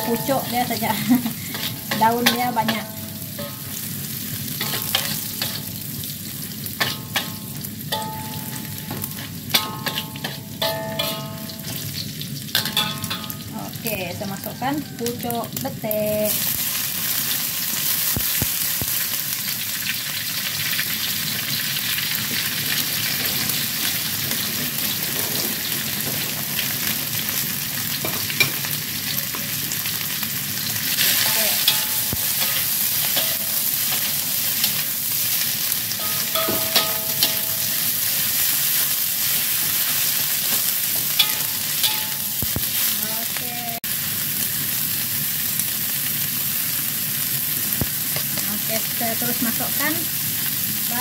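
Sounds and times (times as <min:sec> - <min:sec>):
metal spatula scraping a pan: 0:00.0 - 0:03.9, 0:04.6 - 0:05.9, 0:06.8 - 0:13.4, 0:30.8 - 0:43.0
food sizzling in a wok: 0:00.0 - 0:51.0.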